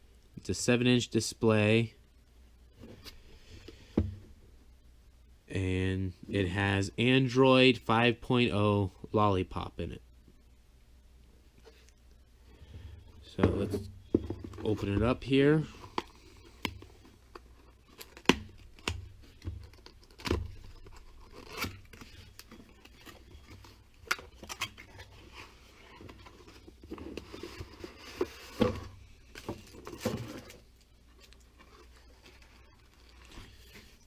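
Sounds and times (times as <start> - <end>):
packaging rustling: 15.7 - 34.0.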